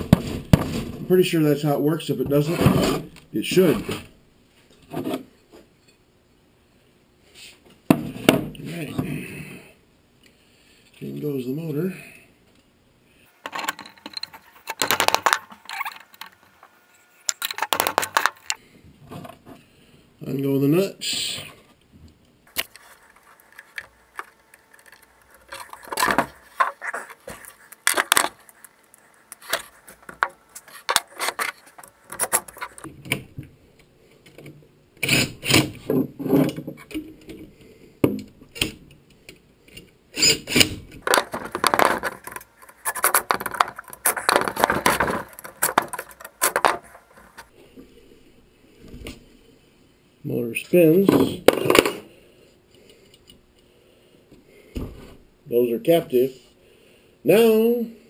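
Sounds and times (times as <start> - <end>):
metal clinks and scrapes: 13.5 - 16.4.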